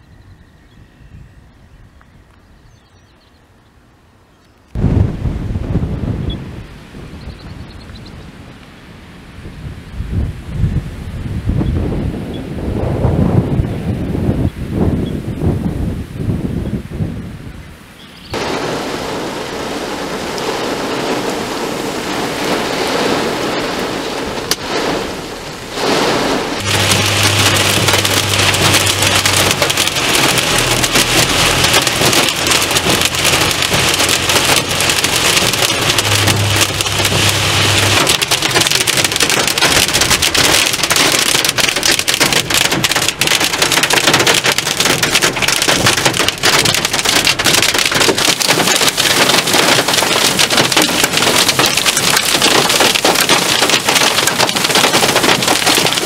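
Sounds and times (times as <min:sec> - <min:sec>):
heavy rain pouring: 0:04.7 - 0:17.6, 0:18.3 - 0:56.0
car low hum: 0:18.3 - 0:56.0
rain pelting car windshield: 0:18.3 - 0:56.0.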